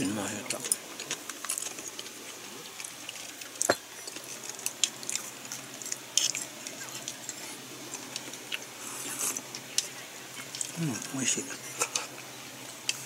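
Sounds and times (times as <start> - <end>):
person chewing: 0.4 - 11.0.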